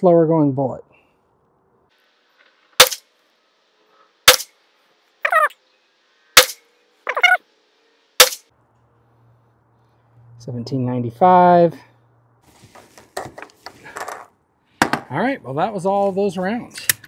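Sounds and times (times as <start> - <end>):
suppressed pistol shots: 2.8 - 3.0, 4.3 - 4.5, 6.4 - 6.6.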